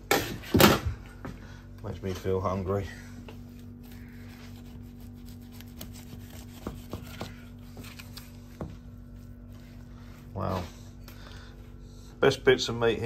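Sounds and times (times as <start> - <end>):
knife scraping through meat: 3.6 - 7.3.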